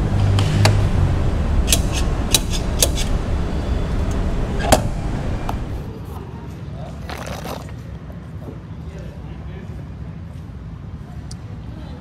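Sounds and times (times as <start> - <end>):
steady low rumble: 0.0 - 6.0.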